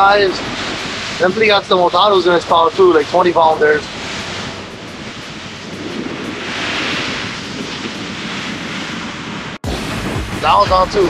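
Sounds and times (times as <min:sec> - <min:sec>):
rushing hiss of boat wake: 0:00.0 - 0:11.0
wind buffeting microphone: 0:00.0 - 0:11.0.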